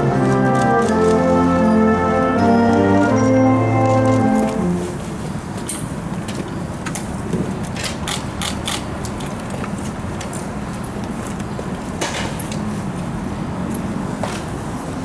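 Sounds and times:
music: 0:00.0 - 0:05.0
outdoor background hiss: 0:00.0 - 0:15.0.

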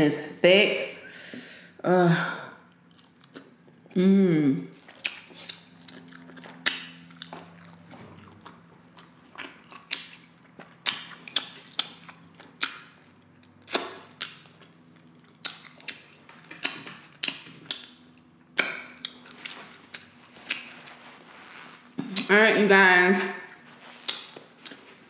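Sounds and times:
wet mouth clicks of chewing: 0:04.8 - 0:18.0, 0:24.0 - 0:24.8.

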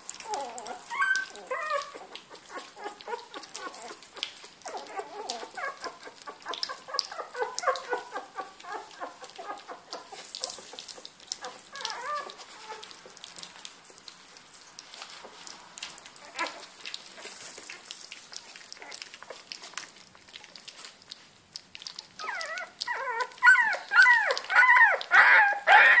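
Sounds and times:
puppies lapping food: 0:00.0 - 0:26.0
puppies squealing loudly: 0:00.2 - 0:04.0, 0:22.2 - 0:26.0
puppies squeaking and whimpering: 0:00.2 - 0:13.1, 0:16.2 - 0:21.2, 0:21.8 - 0:26.0.

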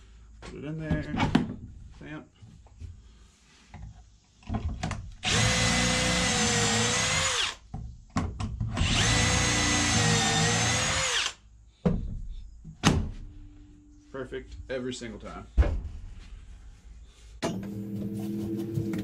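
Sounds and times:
cordless drill boring into wood: 0:05.2 - 0:07.6, 0:08.8 - 0:11.4.

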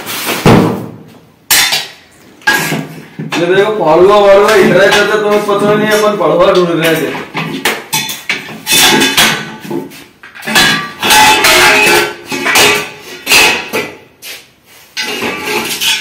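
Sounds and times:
metallic knocking and clattering: 0:06.8 - 0:14.0.

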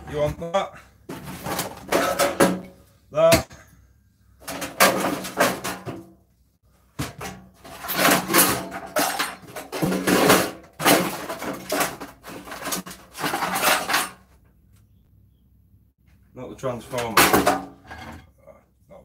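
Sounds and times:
metal parts rattling and clattering: 0:01.1 - 0:02.7, 0:04.4 - 0:06.1, 0:07.1 - 0:14.3.

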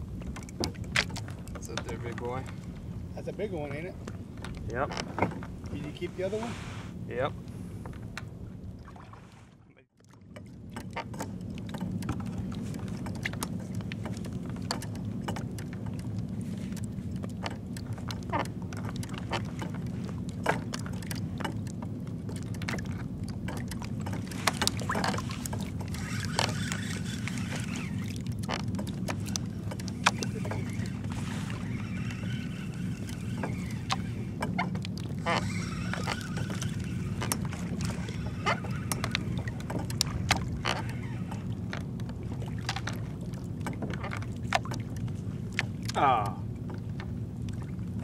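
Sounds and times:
steady low rumble: 0:00.0 - 0:04.9
water slapping against kayak hull: 0:00.0 - 0:06.8, 0:07.5 - 0:48.0.

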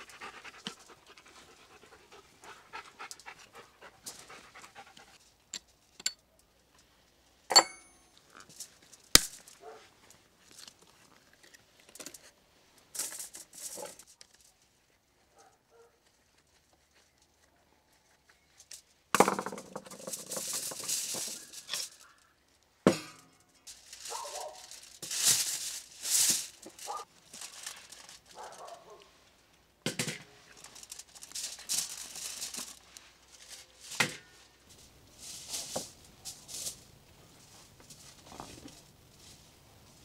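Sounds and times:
crackling and rustling of foil: 0:08.2 - 0:19.0, 0:19.8 - 0:22.6, 0:23.3 - 0:40.0.

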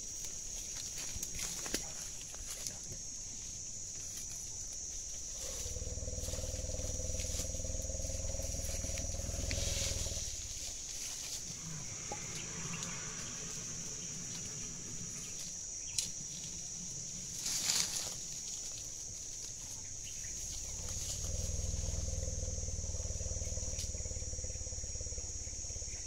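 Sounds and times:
constant high hiss: 0:00.0 - 0:26.0
elephant low rumble: 0:05.2 - 0:26.0.

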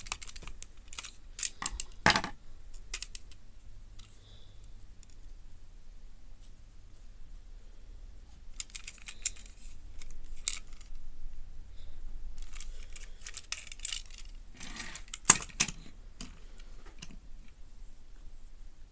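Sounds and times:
crinkly rustling: 0:00.0 - 0:02.0, 0:08.5 - 0:11.0, 0:12.4 - 0:15.3
plastic toy train clicks and rattles: 0:00.0 - 0:03.4, 0:08.5 - 0:11.0, 0:12.4 - 0:16.4.

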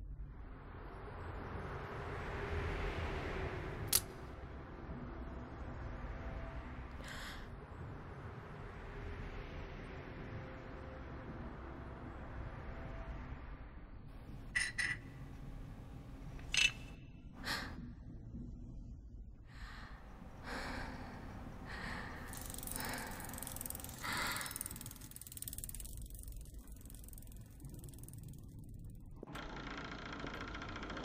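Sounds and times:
breathy gasps and sighs: 0:19.5 - 0:25.2.

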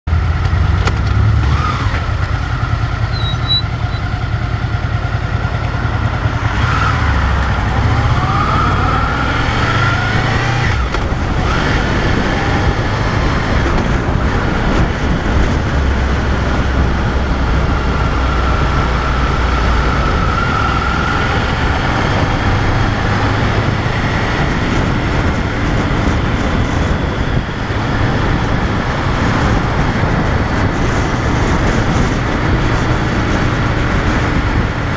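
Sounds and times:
wind and road noise: 0:00.0 - 0:34.9
motorcycle engine running: 0:00.1 - 0:34.9.

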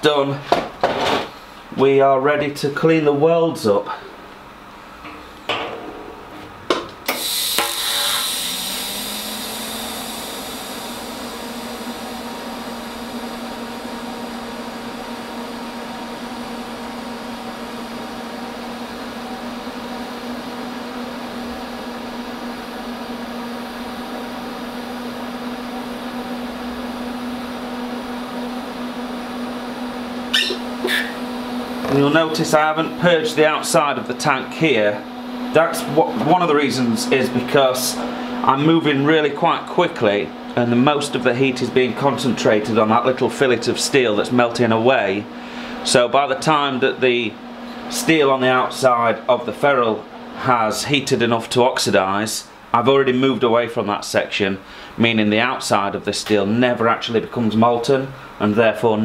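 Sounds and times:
welding arc buzzing hiss: 0:04.8 - 0:39.8.

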